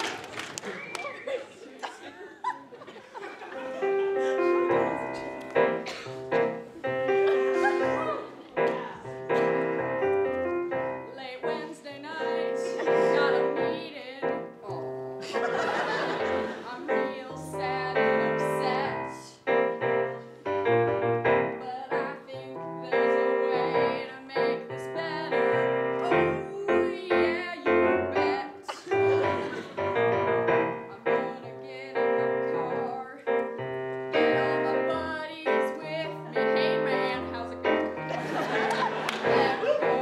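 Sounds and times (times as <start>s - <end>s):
piano chords: 3.3s - 40.0s
woman singing: 11.0s - 15.1s, 16.6s - 19.5s, 21.5s - 29.2s, 30.7s - 33.5s, 34.1s - 38.0s, 39.2s - 40.0s.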